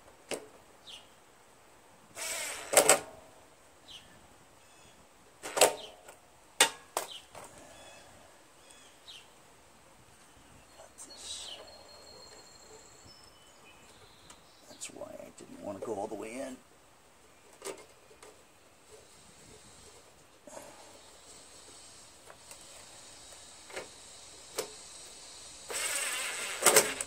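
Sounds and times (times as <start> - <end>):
impact driver bursts: 2.2 - 3.1, 22.6 - 27.0.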